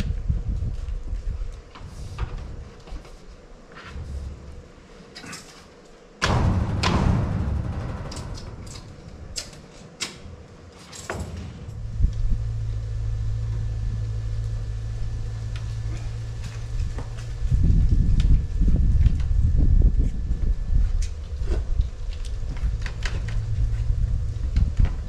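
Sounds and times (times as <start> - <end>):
low rumble: 4.0 - 5.1, 6.2 - 9.8, 11.2 - 25.0.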